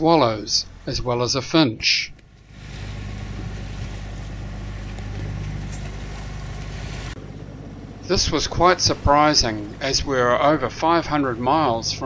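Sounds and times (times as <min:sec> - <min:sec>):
low engine drone: 0:00.0 - 0:12.0
water rushing: 0:00.0 - 0:12.0
wind rushing: 0:02.4 - 0:10.2.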